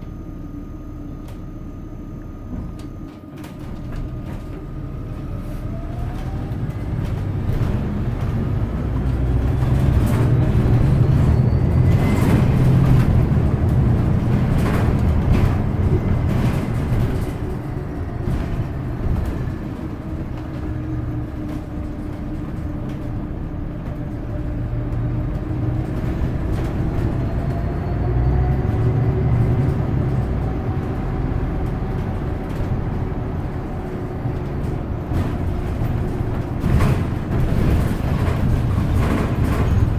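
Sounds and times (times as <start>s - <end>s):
bus drivetrain rumble: 0.0s - 39.9s
faint engine whine: 0.0s - 39.9s
road noise: 0.0s - 39.9s
rattles and knocks: 34.4s - 39.9s.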